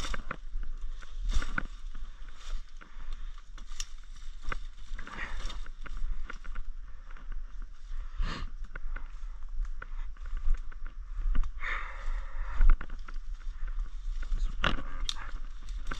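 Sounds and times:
footsteps through undergrowth: 0.0s - 15.9s
low rumble on microphone: 0.0s - 15.9s
twigs and leaves crackling: 0.0s - 15.9s.

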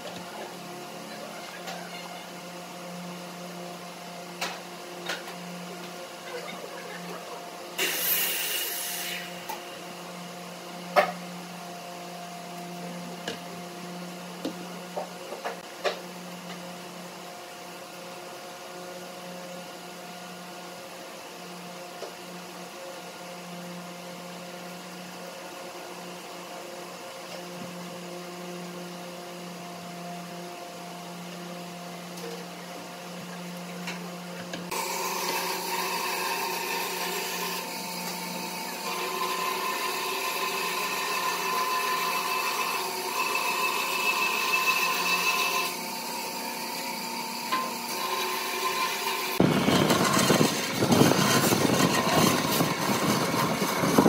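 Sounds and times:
motor hum: 33.3s - 54.0s.

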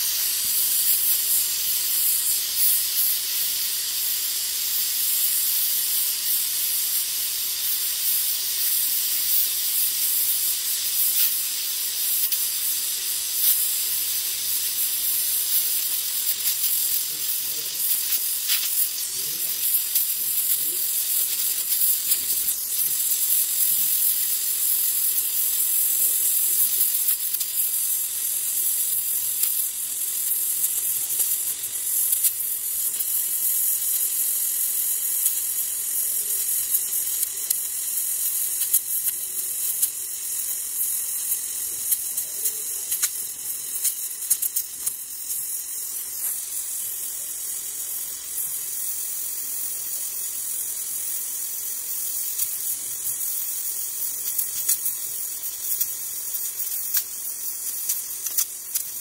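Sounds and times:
crackles of melting metal: 0.0s - 59.0s
welding torch flame hissing: 0.0s - 59.0s.

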